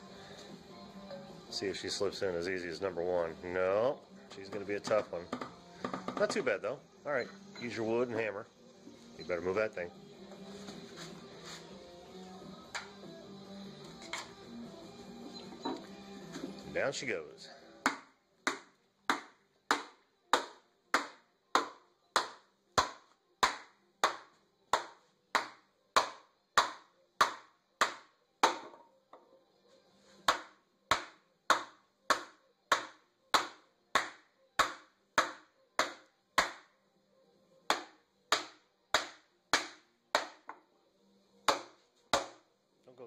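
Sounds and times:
hammer blows on wooden block: 0:04.4 - 0:06.6.

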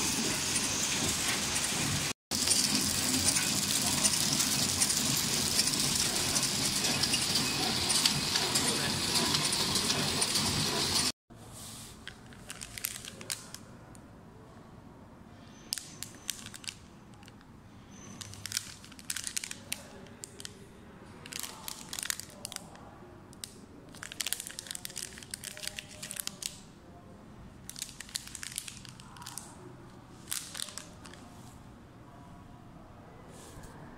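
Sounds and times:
plastic bag crinkling: 0:12.0 - 0:13.7, 0:15.8 - 0:17.3, 0:18.0 - 0:20.6, 0:21.2 - 0:22.8, 0:23.9 - 0:26.6, 0:27.6 - 0:31.4.

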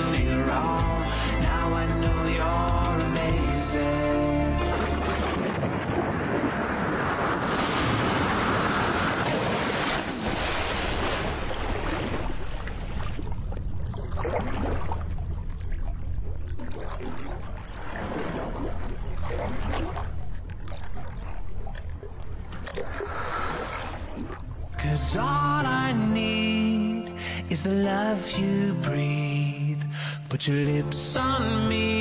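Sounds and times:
underwater exhaled bubbles rushing: 0:04.6 - 0:24.8.

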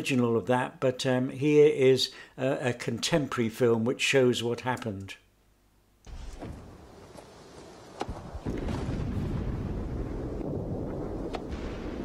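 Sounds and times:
distant artillery rumble: 0:06.1 - 0:12.0.

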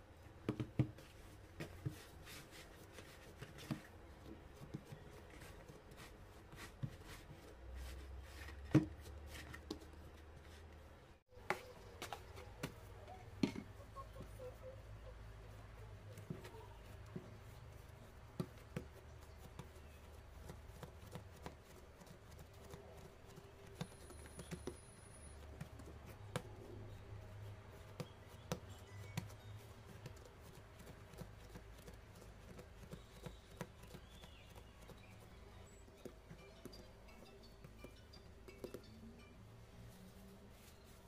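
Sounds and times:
dough tapping on wooden board: 0:00.4 - 0:01.0.

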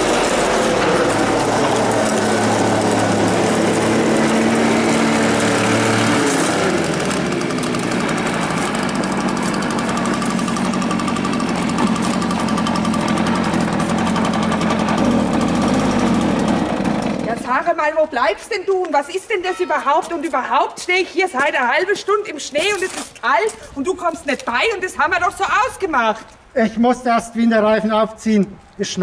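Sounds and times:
leaf blower engine running: 0:00.0 - 0:17.5.

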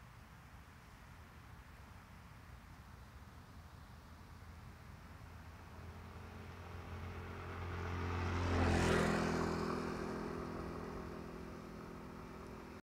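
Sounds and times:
vehicle engine passing by: 0:05.2 - 0:12.8.

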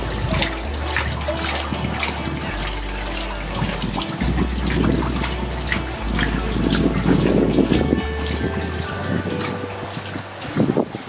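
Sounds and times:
water splashing off a water wheel: 0:00.0 - 0:11.0.

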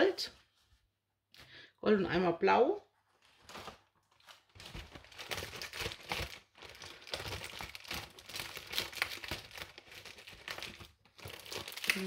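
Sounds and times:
canvas and paper crinkling: 0:02.9 - 0:12.0.

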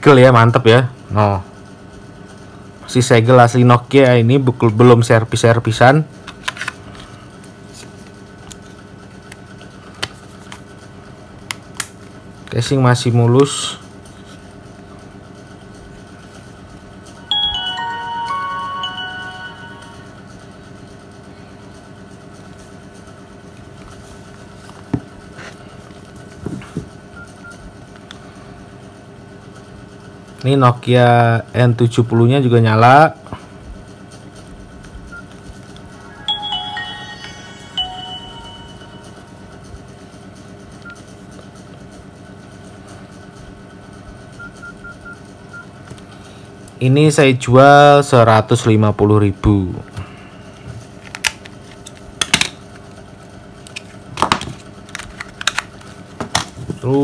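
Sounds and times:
steady background hum: 0:00.0 - 0:57.0
phone startup chime: 0:17.0 - 0:20.8, 0:35.8 - 0:40.0.

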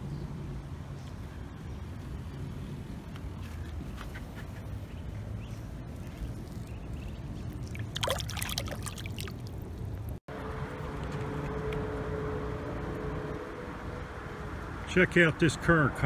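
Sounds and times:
water splashes: 0:05.9 - 0:10.2.

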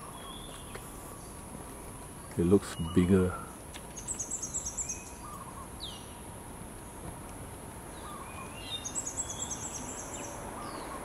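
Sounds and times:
birds high chirps: 0:00.0 - 0:07.2, 0:07.8 - 0:11.0.

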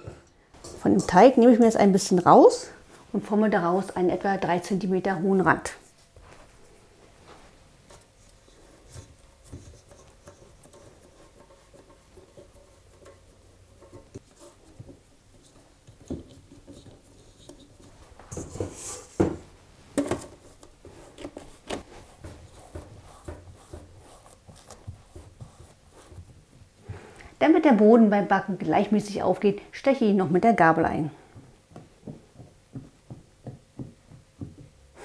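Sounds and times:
hands rubbing dough: 0:05.8 - 0:19.2, 0:20.7 - 0:27.1.

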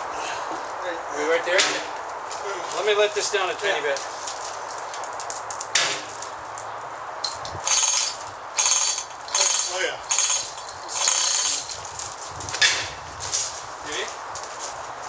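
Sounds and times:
ratchet clicking: 0:07.2 - 0:11.8.

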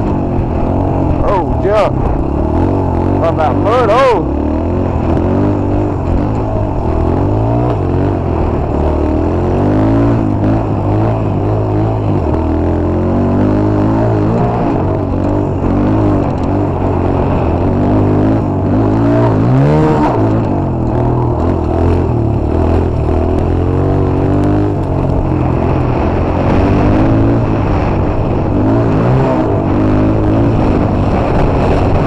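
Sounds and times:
motorcycle engine revving: 0:00.0 - 0:32.0.

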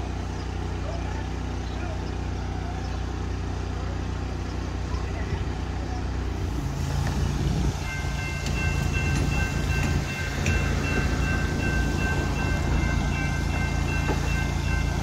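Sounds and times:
railroad crossing bell ringing: 0:07.7 - 0:15.0.

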